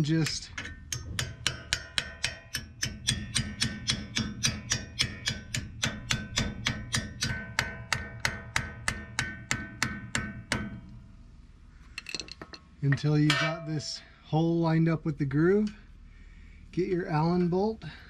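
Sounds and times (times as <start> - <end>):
small hammer tapping on metal: 0.1 - 10.7.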